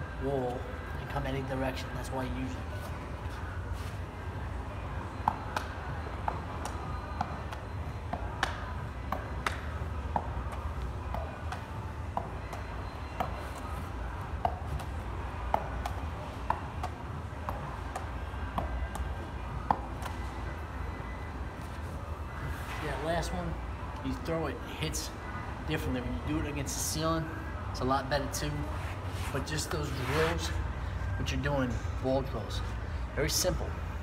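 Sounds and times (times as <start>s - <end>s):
steady low hum: 0.0s - 34.0s
rubber ball tapping a wall: 5.2s - 13.4s.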